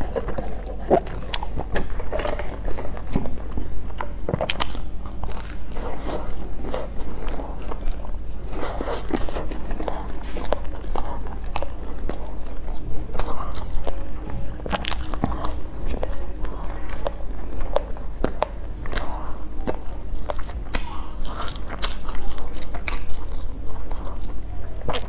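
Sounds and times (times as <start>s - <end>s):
wet chewing: 0.0s - 25.0s.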